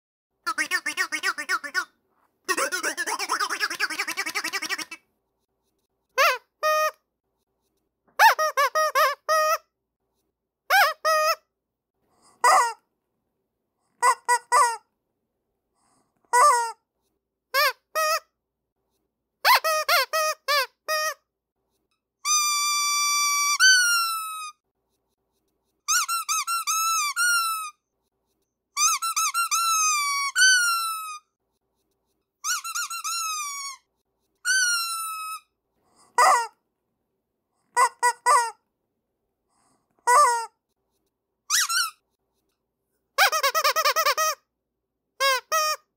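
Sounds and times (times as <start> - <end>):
squeaky rubber dog toys: 0.5 - 5.1, 6.1 - 7.1, 8.1 - 9.8, 10.6 - 11.6, 12.2 - 12.9, 13.8 - 15.0, 15.9 - 16.9, 17.5 - 18.4, 19.4 - 21.3, 21.9 - 24.6, 25.8 - 27.9, 28.7 - 31.4, 32.4 - 36.6, 37.6 - 38.7, 39.6 - 40.7, 41.4 - 42.1, 43.1 - 44.5, 45.1 - 45.9.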